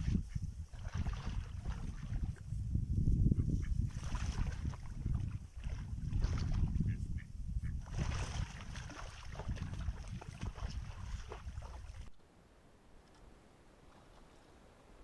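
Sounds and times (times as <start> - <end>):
duck splashing in water: 0.0 - 2.3, 3.7 - 7.0, 7.6 - 12.1
wind buffeting microphone: 0.0 - 12.1.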